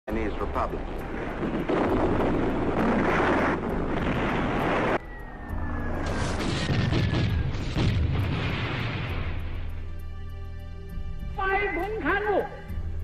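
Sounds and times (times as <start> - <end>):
rushing blast roar: 0.8 - 9.6
deep explosion booms: 0.9 - 5.0, 6.1 - 9.6
falling whistle: 5.0 - 7.6.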